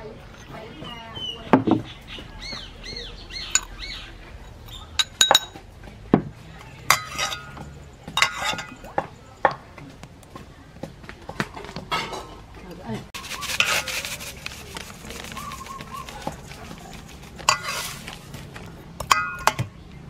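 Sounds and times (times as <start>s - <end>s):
spoon clinking against metal bowl: 3.5s - 3.8s, 4.5s - 5.6s, 6.9s - 9.0s, 17.4s - 18.0s, 19.0s - 19.7s.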